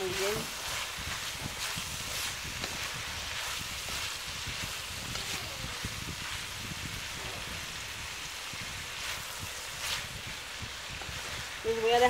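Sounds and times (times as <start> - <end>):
wooden spoon stirring and knocking: 0.0 - 7.7
meat and vegetables sizzling in pan: 0.0 - 12.0.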